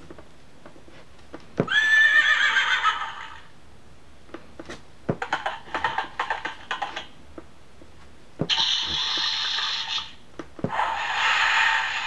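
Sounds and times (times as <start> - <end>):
recorded horse whinny: 1.7 - 2.8.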